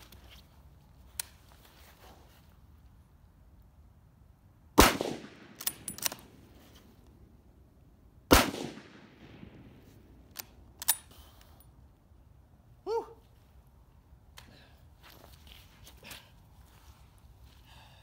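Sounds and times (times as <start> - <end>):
rifle shots with echo: 4.8 - 6.4, 8.3 - 9.9
rifle bolt clacking: 5.6 - 6.3, 10.3 - 11.1.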